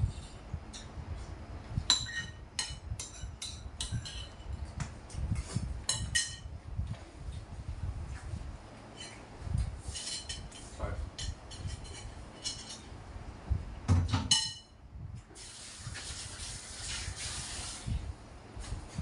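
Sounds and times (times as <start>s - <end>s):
crockery clinking: 14.3s - 14.8s.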